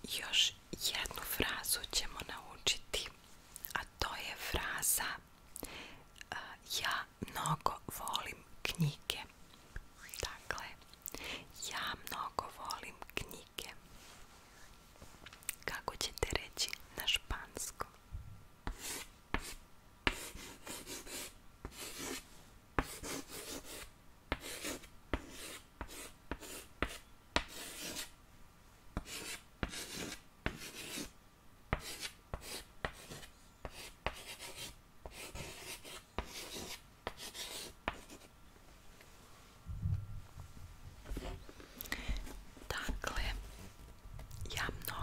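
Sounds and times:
pen writing on paper: 18.7 - 22.2, 22.8 - 28.1, 29.0 - 31.1, 31.8 - 38.3.

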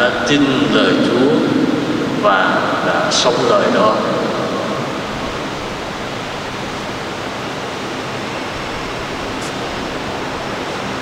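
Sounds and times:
steady rushing hiss: 0.0 - 11.0.

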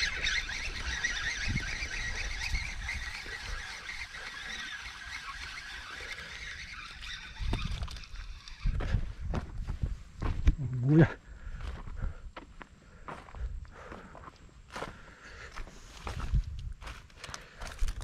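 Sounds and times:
small animals chattering: 0.0 - 8.8.

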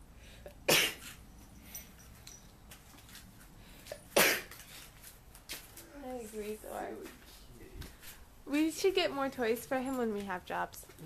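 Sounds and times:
cat sneezing: 0.7 - 1.2, 4.2 - 4.5.

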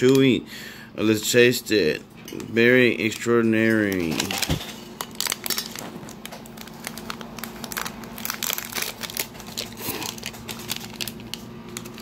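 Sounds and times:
plastic pouch crinkling: 3.1 - 12.0.

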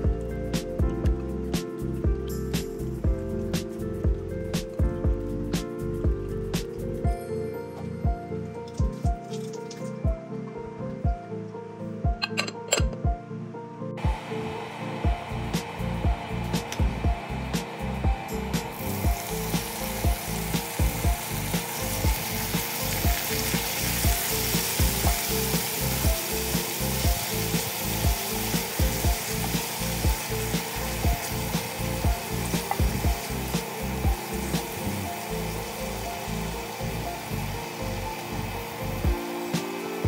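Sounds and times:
background music with steady beat: 0.0 - 40.0
garlic sizzling in oil: 14.8 - 40.0.

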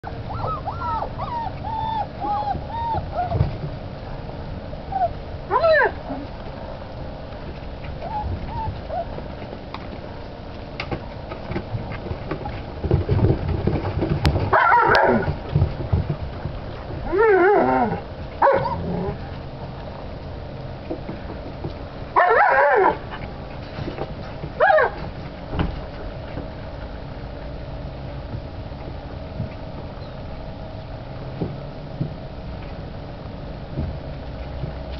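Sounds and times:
puppies yipping and whining: 0.1 - 3.6, 4.9 - 6.3, 8.0 - 9.4.

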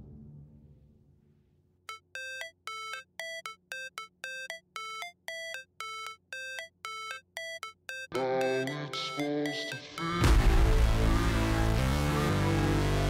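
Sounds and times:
short synth notes: 10.2 - 13.0.

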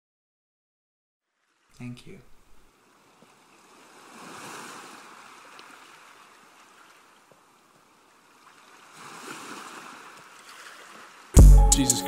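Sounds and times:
waves surging and foaming: 2.7 - 11.4.

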